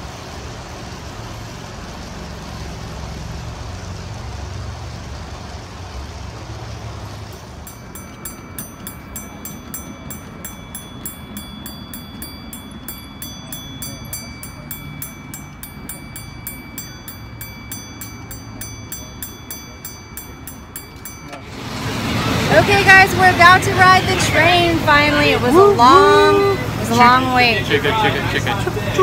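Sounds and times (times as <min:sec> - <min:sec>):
crossing signal bell ringing: 0:07.2 - 0:29.0.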